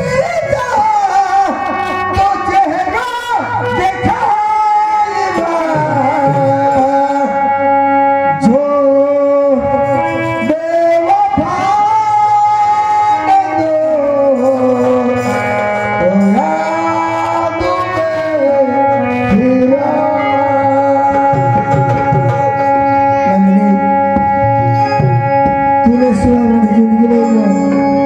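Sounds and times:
low instrumental drone: 0.0s - 28.0s
person singing sliding notes: 8.4s - 28.0s.

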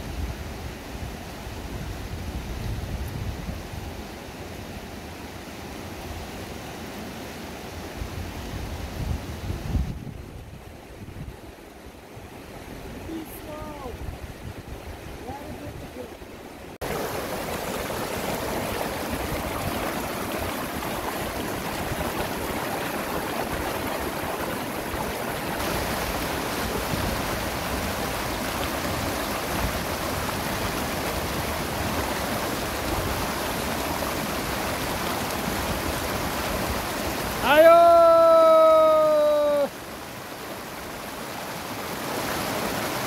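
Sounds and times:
river rushing over rocks: 11.8s - 43.0s.

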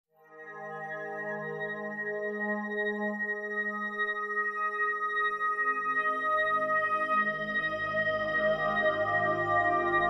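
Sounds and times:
background music held chords: 3.2s - 10.0s.

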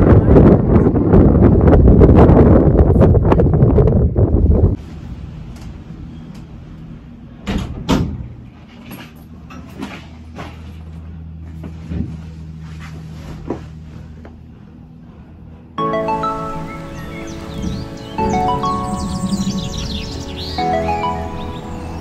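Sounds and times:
wind noise on microphone: 0.0s - 6.2s
cable car hum: 0.0s - 22.0s
cable car cabin clunking: 5.4s - 10.9s, 16.4s - 20.3s.

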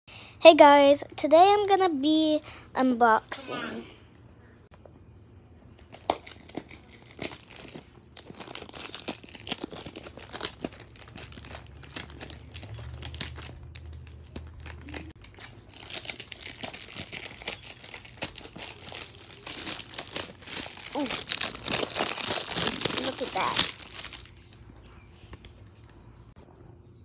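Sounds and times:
cardboard packaging crinkling and tearing: 5.8s - 24.6s.

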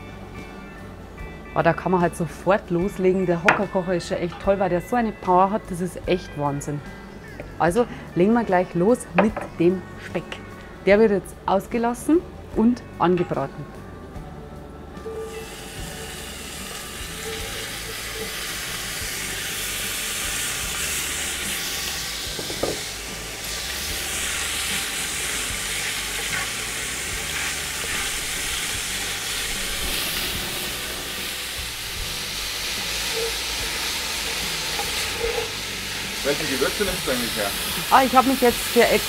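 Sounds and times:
meat sizzling in hot oil: 15.3s - 39.0s.

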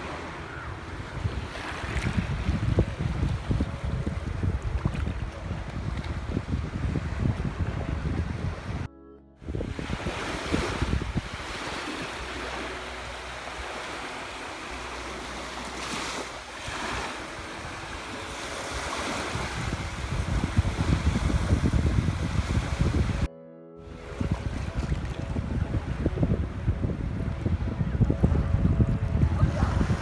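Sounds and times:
small waves lapping at shore: 0.0s - 3.7s, 9.7s - 23.3s
wind buffeting microphone: 0.0s - 13.1s, 15.8s - 23.3s, 23.9s - 30.0s.

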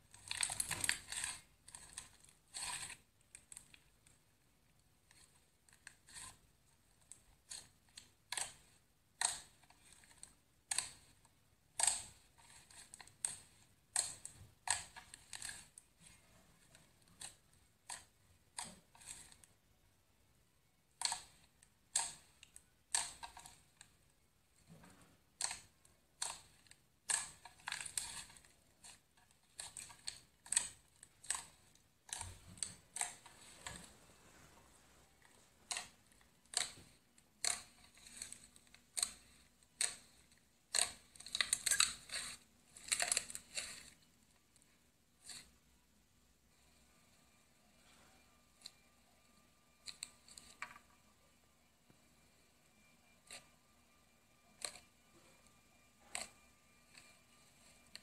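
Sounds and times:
slime popping and crackling: 0.0s - 3.8s, 7.1s - 19.4s, 20.9s - 23.8s, 24.7s - 34.6s, 35.4s - 43.9s.

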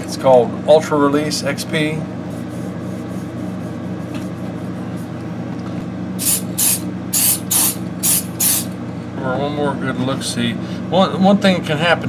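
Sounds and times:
steady low hum: 0.0s - 12.0s
aerosol can spraying: 6.2s - 8.7s.

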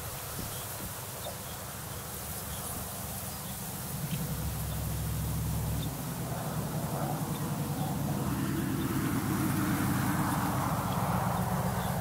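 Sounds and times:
low rumble: 3.9s - 12.0s
faint high ticks: 4.0s - 5.9s.

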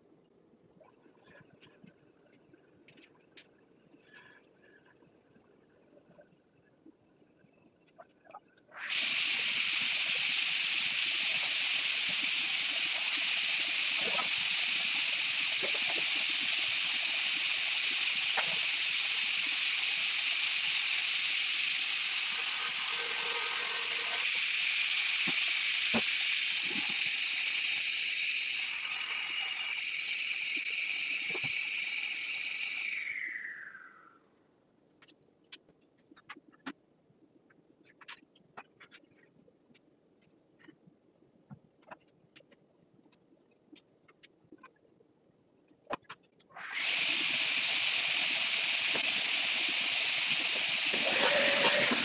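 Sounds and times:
workshop tool hissing: 8.7s - 34.1s, 46.6s - 52.0s
high whistle: 21.8s - 24.3s, 28.4s - 34.2s.

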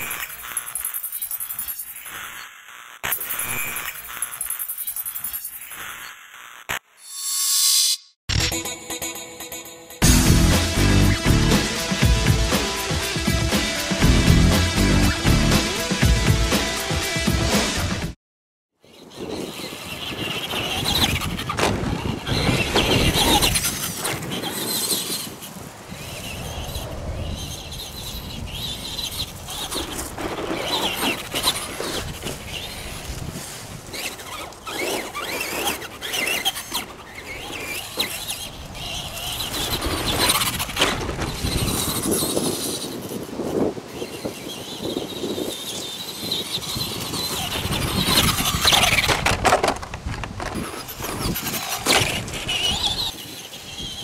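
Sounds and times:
toy truck electric motor whining: 0.0s - 6.8s, 18.8s - 49.8s, 50.4s - 54.0s.

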